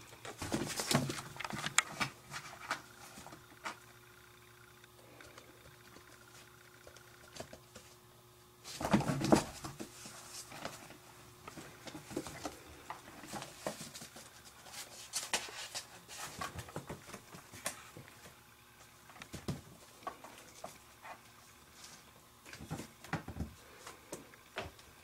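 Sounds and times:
kittens scratching cardboard: 0.3s - 3.8s, 8.6s - 18.3s.

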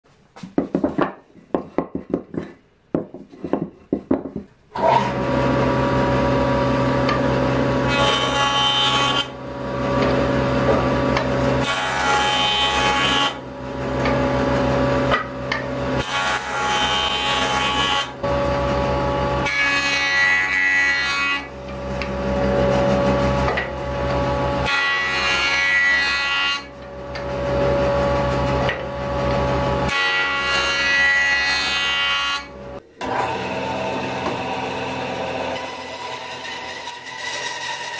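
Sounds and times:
wooden boards knocking: 0.4s - 4.5s
electric jointer humming: 4.8s - 37.9s
jointer cutting wood: 4.8s - 37.9s.

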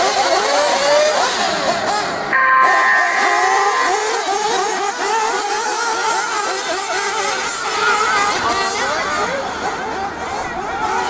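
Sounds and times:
model car engines revving: 0.0s - 2.4s, 3.5s - 11.0s
electronic start tone: 2.3s - 5.3s.

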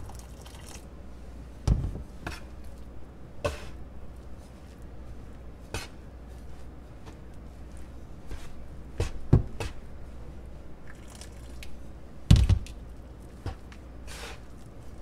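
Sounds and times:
bench scraper scraping dough: 3.4s - 3.8s, 5.7s - 6.0s, 13.4s - 14.5s.

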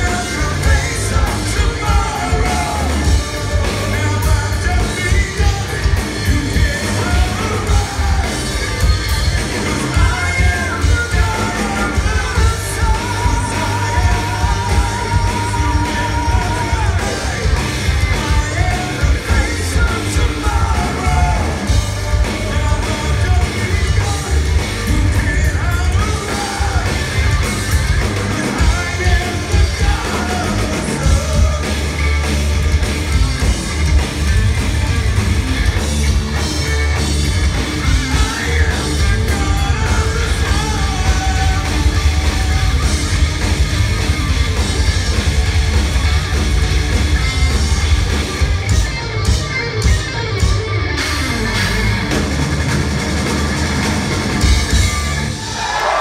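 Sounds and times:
male singer: 0.0s - 8.6s, 9.6s - 27.0s, 28.2s - 31.9s, 37.9s - 43.0s
live metal band: 0.0s - 56.0s.

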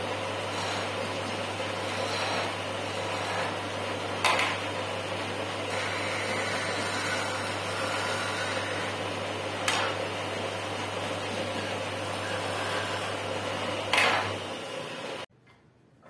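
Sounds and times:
turning tool scraping wood: 0.0s - 4.3s, 5.3s - 14.4s
wood lathe hum: 0.0s - 15.3s.

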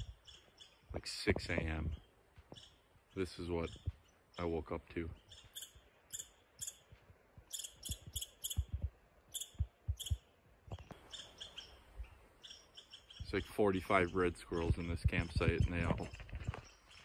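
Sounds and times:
squirrels chirping: 0.0s - 0.9s, 1.7s - 17.0s
soft low thumps: 7.4s - 11.0s, 14.6s - 16.6s.

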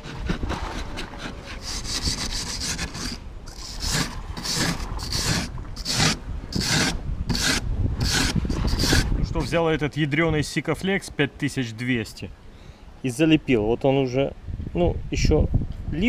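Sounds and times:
metal blade scraping fibreglass: 0.0s - 9.1s.

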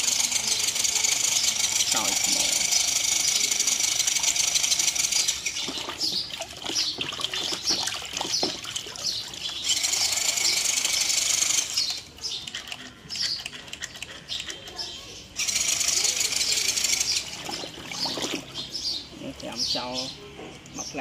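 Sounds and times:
water splashing and churning: 4.2s - 10.8s, 17.0s - 19.8s.

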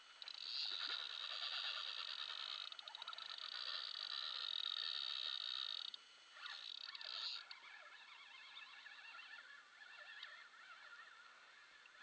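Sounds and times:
fishing reel buzzing: 0.2s - 7.5s.

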